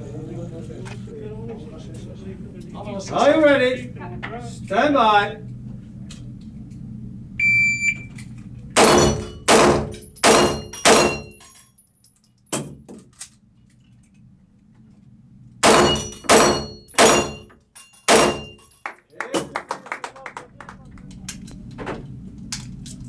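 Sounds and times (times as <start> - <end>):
shot timer beep: 7.4 - 8.1
pistol shots echoing: 8.8 - 11.2, 15.6 - 17.4, 18.1 - 18.5.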